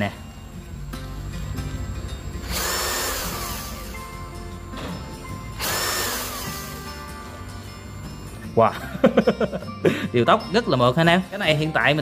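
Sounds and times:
drill motor whining: 0.0s - 8.4s.

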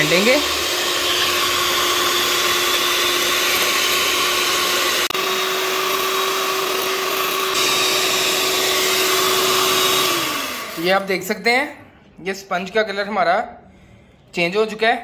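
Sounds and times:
electric hand mixer whining: 0.0s - 11.1s.

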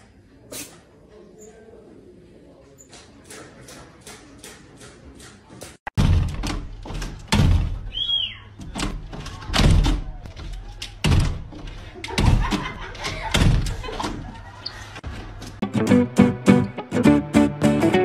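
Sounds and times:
sliding glass door banging: 5.9s - 7.9s, 8.6s - 14.4s.

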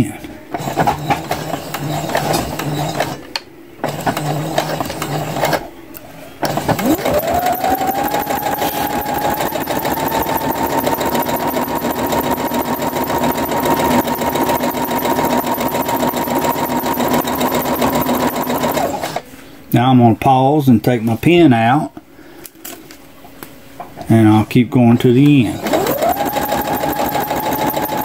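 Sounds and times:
sewing machine motor whine: 0.5s - 5.7s, 6.4s - 19.2s, 25.4s - 28.0s
sewing machine stitching: 0.5s - 5.7s, 6.4s - 19.2s, 25.0s - 28.0s.

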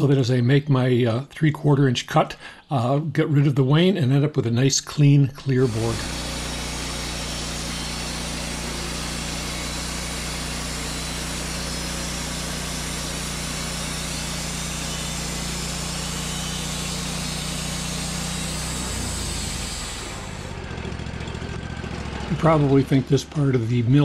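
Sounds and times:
sawmill engine droning: 5.4s - 24.0s.

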